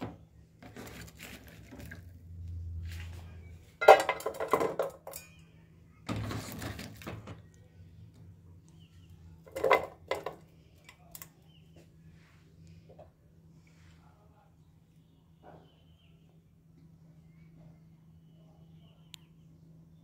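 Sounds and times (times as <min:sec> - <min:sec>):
metal bowls and pot clattering: 0:03.8 - 0:05.4, 0:09.5 - 0:10.4.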